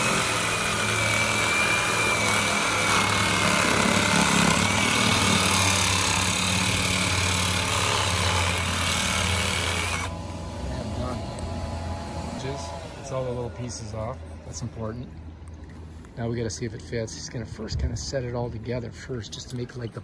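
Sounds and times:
reciprocating saw cutting plastic pipe: 0:00.0 - 0:10.2.

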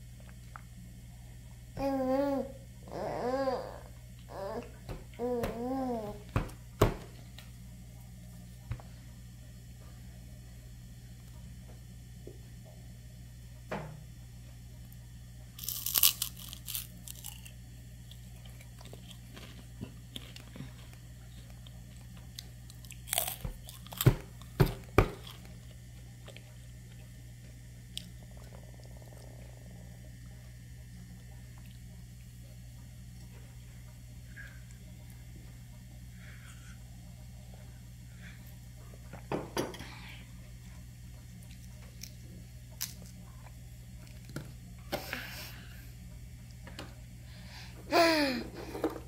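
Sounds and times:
steady low hum: 0:00.0 - 0:49.0
baby chewing rice cracker: 0:15.6 - 0:24.6, 0:41.4 - 0:44.4.

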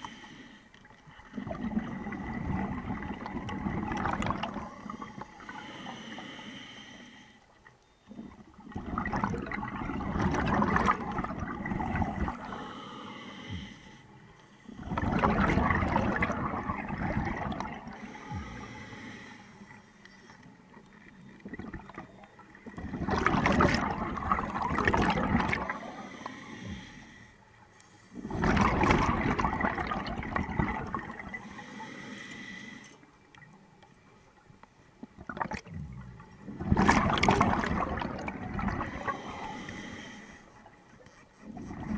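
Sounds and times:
diver exhaling bubbles underwater: 0:01.3 - 0:05.6, 0:08.3 - 0:12.6, 0:14.8 - 0:18.5, 0:21.4 - 0:26.1, 0:28.2 - 0:31.4, 0:35.2 - 0:39.9.

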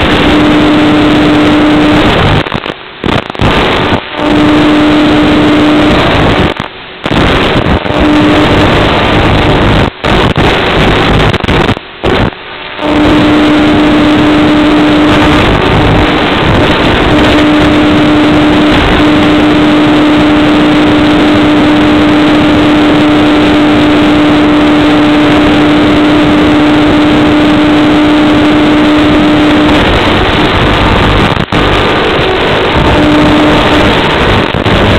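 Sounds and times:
wind and propeller rush: 0:00.0 - 0:34.9
electric motor hum: 0:04.1 - 0:06.4, 0:07.4 - 0:09.7, 0:12.8 - 0:34.9.

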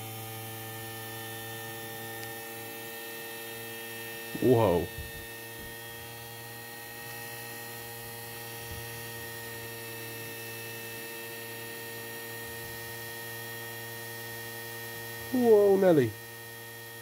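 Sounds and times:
electrical hum with high whine: 0:00.0 - 0:17.0.

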